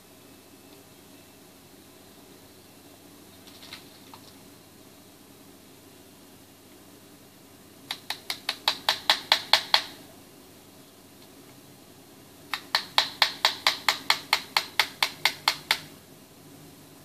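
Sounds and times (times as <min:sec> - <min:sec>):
small hammer tapping on metal: 0:07.9 - 0:10.0, 0:12.5 - 0:15.9.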